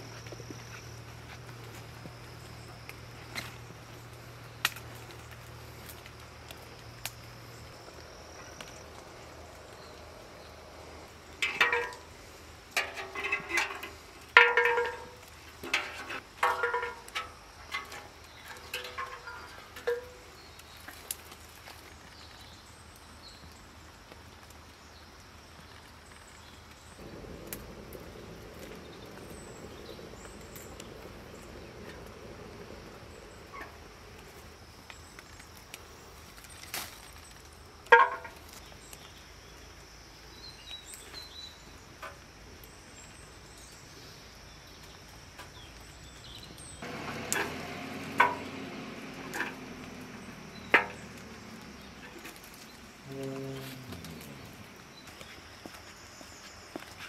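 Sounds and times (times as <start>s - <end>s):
low steady rumble: 27.0s - 35.3s
animal calling: 53.0s - 54.9s.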